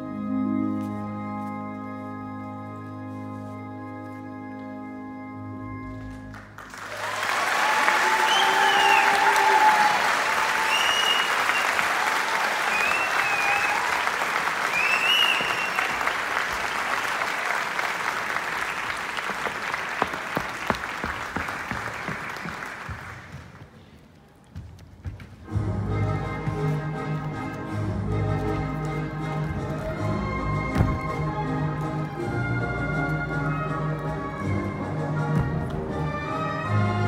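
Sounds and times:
audience applauding and cheering: 6.3 - 23.7
whoops: 6.9 - 14.1.

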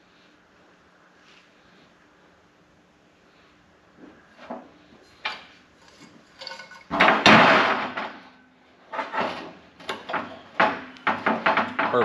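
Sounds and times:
loud metal handling noise: 4.4 - 12.0
metal tube knocks and clinks: 5.2 - 7.4.

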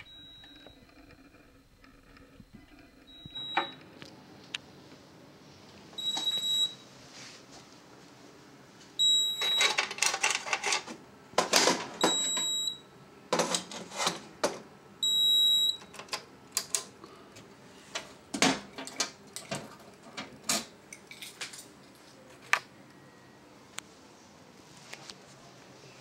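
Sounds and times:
alarm panel beeping: 3.1 - 3.8, 12.0 - 12.8.

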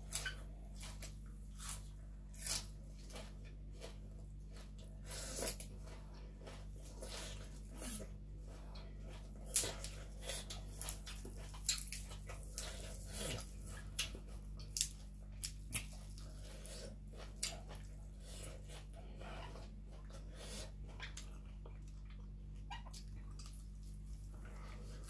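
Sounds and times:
low electrical hum: 0.0 - 25.0
chewing and lip smacks: 8.7 - 24.7.

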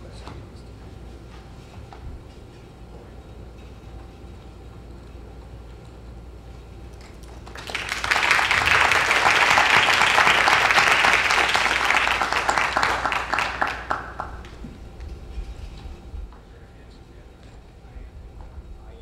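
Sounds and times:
audience applause: 7.2 - 14.6.

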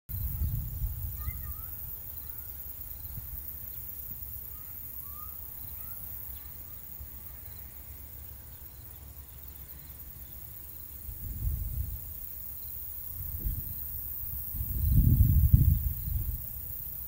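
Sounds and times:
high insect drone: 0.1 - 17.0
bird chirps: 1.2 - 7.8.

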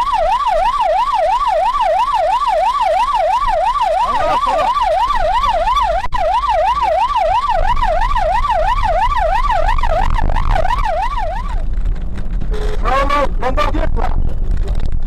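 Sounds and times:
police siren yelping: 0.0 - 11.7
car engine and road noise: 0.0 - 15.0.

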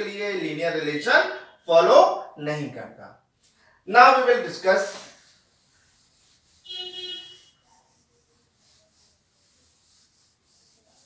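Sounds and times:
faint rubbing: 4.5 - 11.0
cloth squeaking on whiteboard: 5.5 - 11.0.

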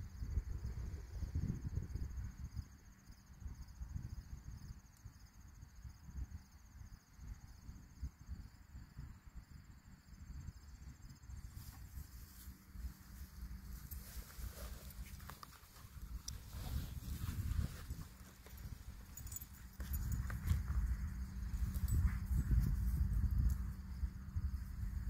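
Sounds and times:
insects chirping: 0.0 - 25.0
low rumble on microphone: 10.2 - 25.0.

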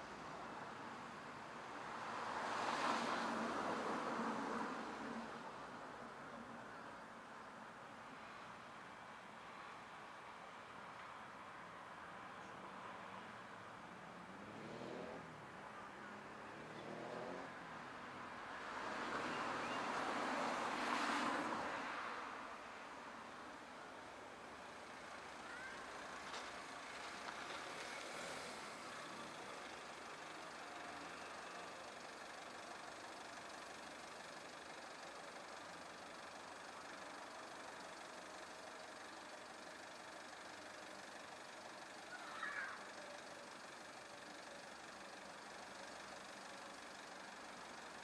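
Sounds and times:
van idling: 23.9 - 48.0.

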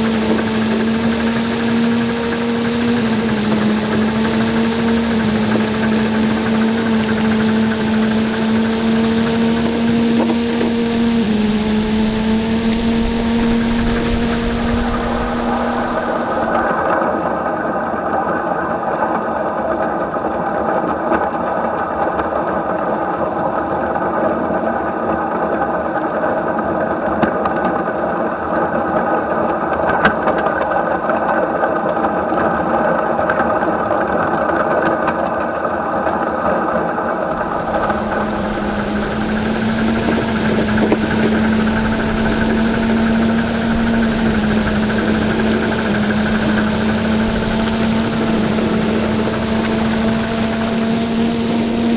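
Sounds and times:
miniature steam train rumbling: 0.0 - 16.8, 37.3 - 51.9
steady hiss: 0.0 - 16.8, 37.3 - 51.9
low even hum: 0.0 - 16.9, 37.3 - 51.9.

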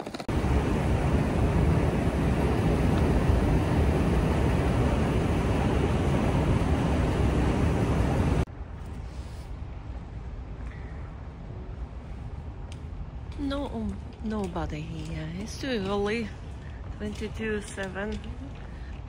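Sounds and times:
even hum: 0.0 - 8.5.

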